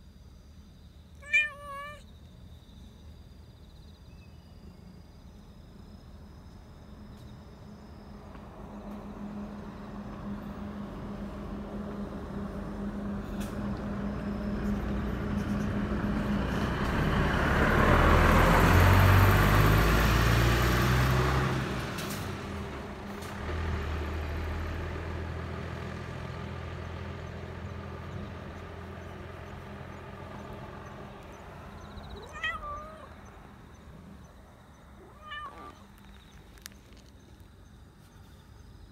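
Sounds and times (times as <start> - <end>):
cat meowing: 1.2 - 2.1, 32.1 - 33.2, 35.0 - 35.9
vehicle passing by: 8.5 - 36.0.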